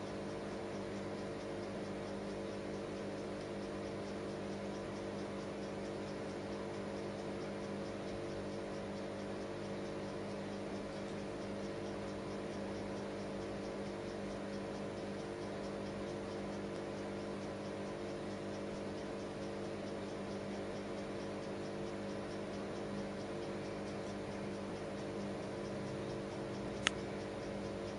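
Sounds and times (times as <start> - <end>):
steady low hum: 0.0 - 27.9.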